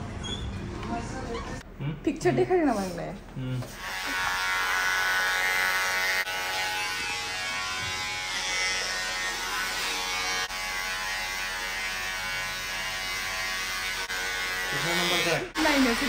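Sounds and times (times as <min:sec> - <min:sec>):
electric hair clipper buzzing: 0:03.7 - 0:16.0.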